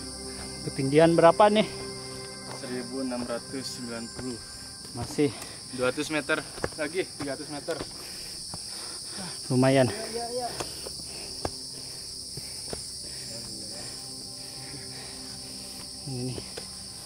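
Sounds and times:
footsteps on dirt trail: 0.0s - 9.2s, 9.8s - 17.0s
forest insects chorus: 0.0s - 17.0s
person speaking: 2.5s - 7.8s.

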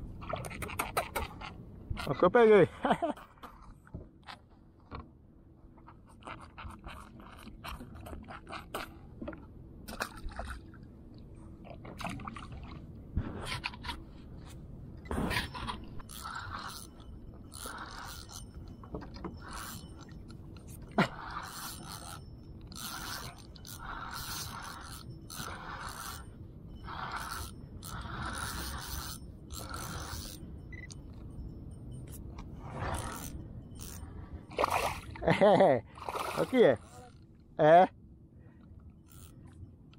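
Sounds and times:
fishing reel cranking: 15.7s - 31.3s, 32.0s - 34.1s, 39.0s - 39.5s.

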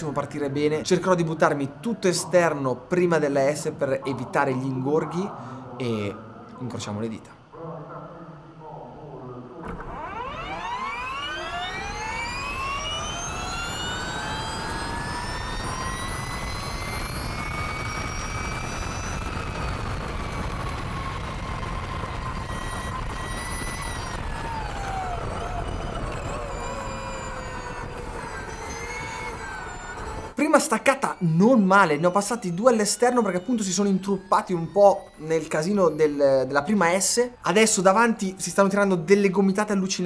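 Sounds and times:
electric motorcycle motor whine: 9.6s - 39.6s.

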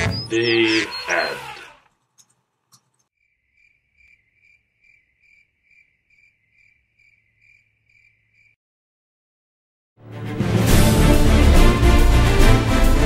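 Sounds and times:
cricket chirping: 3.1s - 8.6s.

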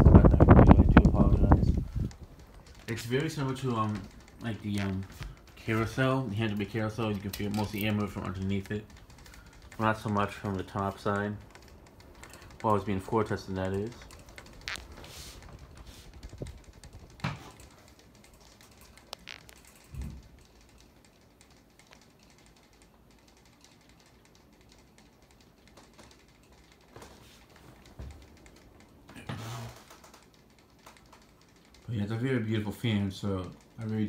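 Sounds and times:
ceiling fan whoosh: 0.0s - 34.0s
light clicks and soft knocks: 0.0s - 34.0s.

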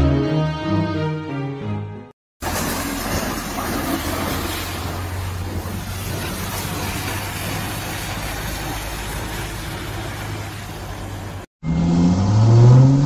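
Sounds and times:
street noise hiss: 2.4s - 11.5s
vehicle engine hum: 2.4s - 13.0s.

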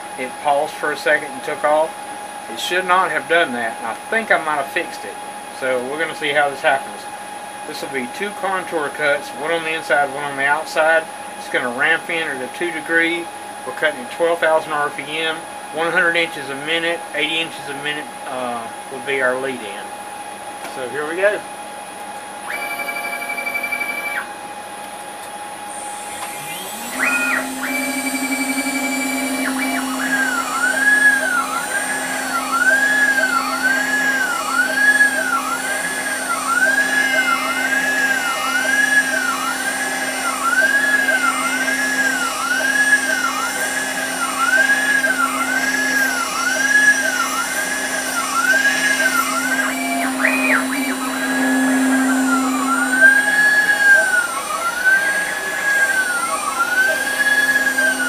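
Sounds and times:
motors whining rise and fall: 22.4s - 24.3s, 25.6s - 58.0s
router spindle whine: 22.4s - 24.4s, 25.5s - 58.0s
end mill cutting plastic: 25.7s - 58.0s.

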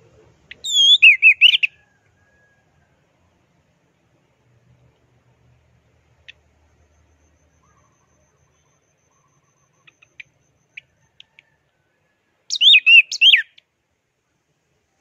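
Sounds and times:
thrush warbling whistled song: 0.6s - 1.8s, 6.9s - 11.0s, 12.5s - 13.6s.

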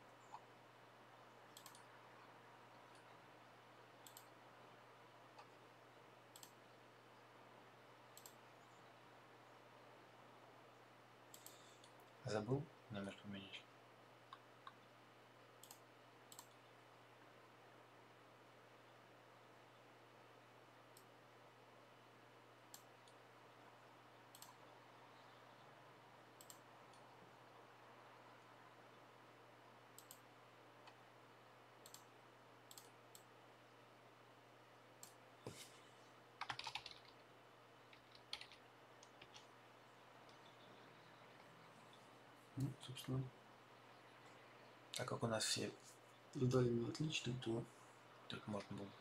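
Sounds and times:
low steady hiss: 0.0s - 49.0s
computer mouse clicks: 0.1s - 0.5s, 1.3s - 3.2s, 4.0s - 4.4s, 5.3s - 5.6s, 6.3s - 6.7s, 8.1s - 8.9s, 11.3s - 12.2s, 15.6s - 16.7s, 20.9s - 21.2s, 22.7s - 23.2s, 24.3s - 25.6s, 26.3s - 27.1s, 29.9s - 31.0s, 31.8s - 33.3s, 35.0s - 35.7s, 36.4s - 39.6s, 42.6s - 42.8s.

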